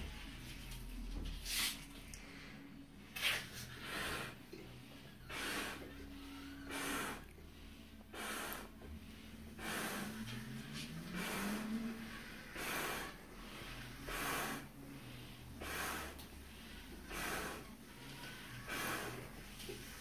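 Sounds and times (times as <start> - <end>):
person blowing into balloon: 3.2 - 4.4, 5.2 - 7.3, 8.1 - 8.8, 9.5 - 14.8, 15.6 - 20.0
sharp breaths: 3.5 - 20.0.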